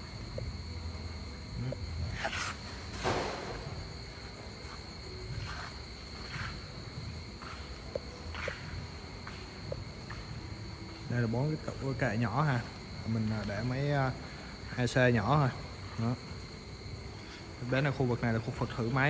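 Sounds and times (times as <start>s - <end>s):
footsteps on concrete floor: 2.2s - 11.1s.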